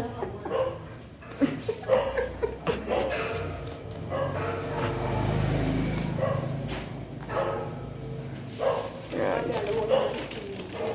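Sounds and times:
puppy barking playfully: 0.4 - 1.0, 1.8 - 5.0.

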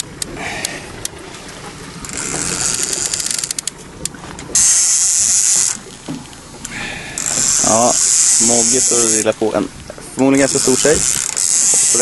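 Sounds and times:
fishing reel drag clicking: 2.0 - 6.0, 6.6 - 9.6, 10.2 - 12.0.

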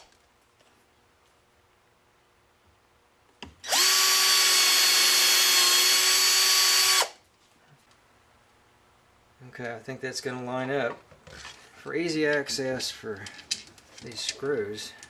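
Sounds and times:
power drill whining: 3.6 - 7.2.

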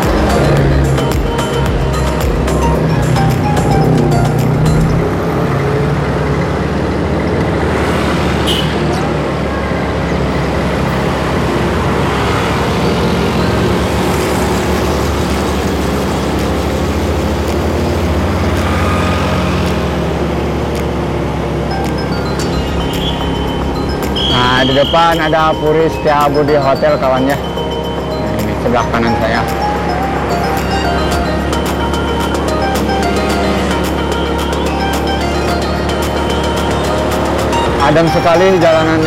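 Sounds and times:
motorcycle engine running: 0.0 - 7.8
road and wind noise: 0.0 - 39.0.

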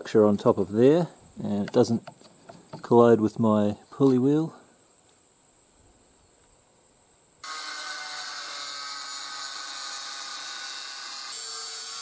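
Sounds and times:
insect chirring: 0.2 - 7.8
angle grinder cutting steel: 7.4 - 12.0.

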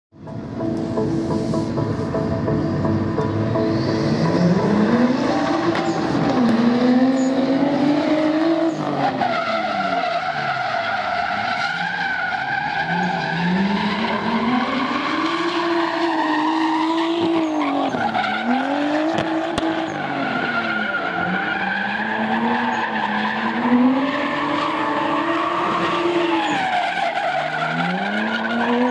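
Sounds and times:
car engine revving hard: 4.0 - 10.6, 12.9 - 26.6.

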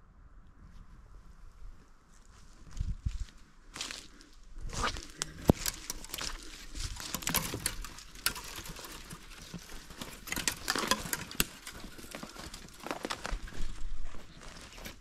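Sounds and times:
footsteps crunching dry leaves: 2.1 - 15.0.

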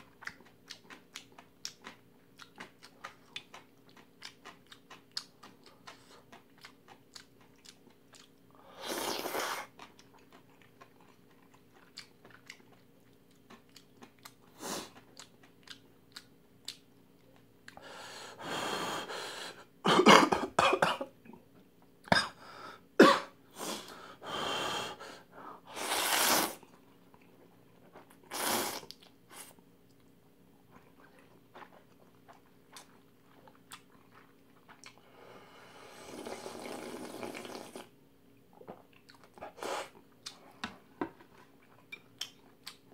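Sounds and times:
wet chewing with mouth clicks: 0.0 - 17.8, 26.6 - 35.1, 38.6 - 42.9
noodle slurping: 8.7 - 9.7, 25.7 - 26.6, 35.9 - 37.9.

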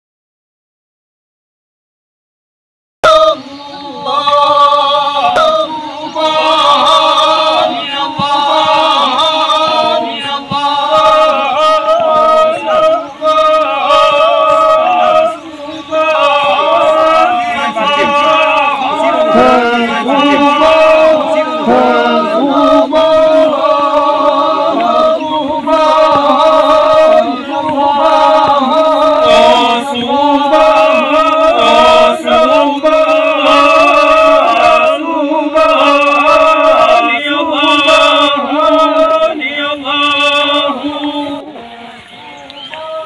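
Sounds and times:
men chanting in song: 3.0 - 43.0.

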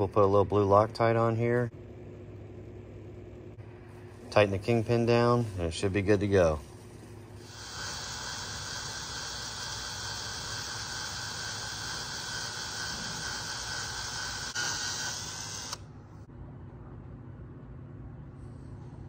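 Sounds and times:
power drill whining into metal: 7.6 - 15.8.

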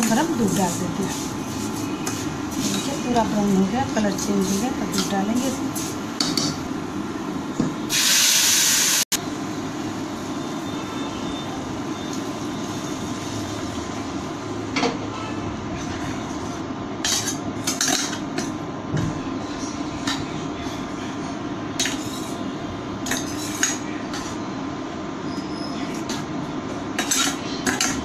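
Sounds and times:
metal spoon stirring in pan: 0.0 - 6.0, 21.8 - 24.4, 27.0 - 28.0
milk sizzling in hot pan: 7.9 - 9.1.

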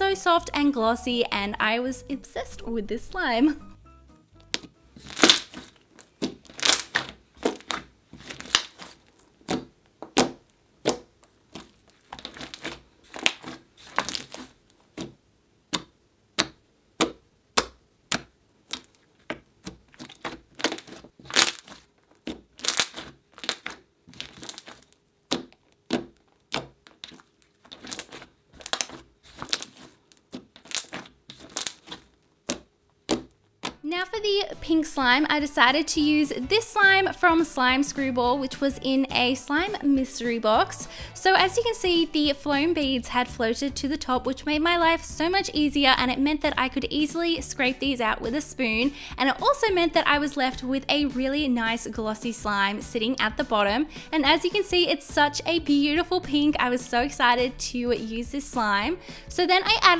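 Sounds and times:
hands squeezing slime: 5.0 - 15.1, 18.1 - 33.3.

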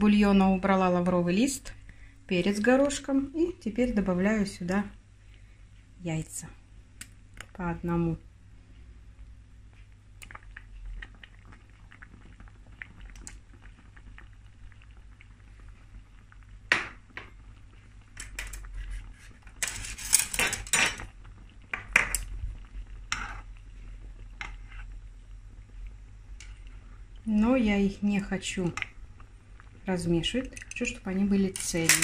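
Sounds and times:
broth simmering in pot: 0.0 - 32.0
utensils clinking against pot: 19.6 - 21.0, 31.5 - 32.0.

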